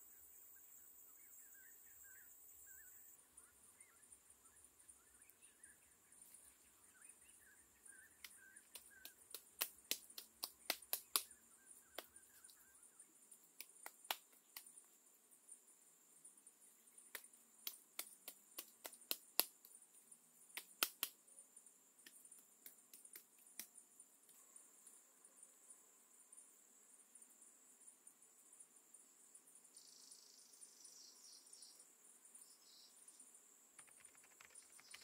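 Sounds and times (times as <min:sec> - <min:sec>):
faint bird chirps: 0:00.0 - 0:15.6, 0:28.9 - 0:35.0
insect drone: 0:00.0 - 0:35.0
bamboo sticks clicking: 0:08.2 - 0:11.3, 0:13.6 - 0:14.7, 0:17.1 - 0:19.7, 0:20.6 - 0:21.2, 0:22.0 - 0:23.7.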